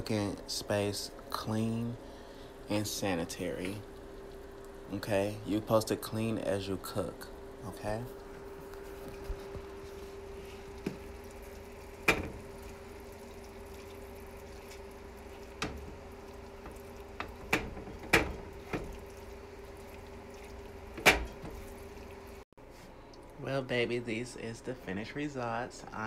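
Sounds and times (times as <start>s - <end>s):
steady low hum: 0.0s - 26.0s
spoon stirring meat in skillet: 8.3s - 22.2s.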